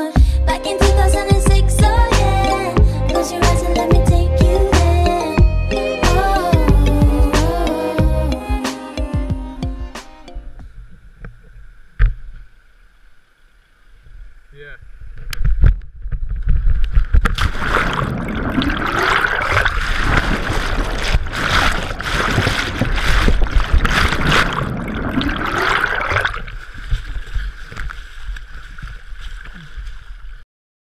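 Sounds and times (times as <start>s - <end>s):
water gurgling: 9.4s - 30.4s
water rushing and splashing: 16.5s - 30.4s.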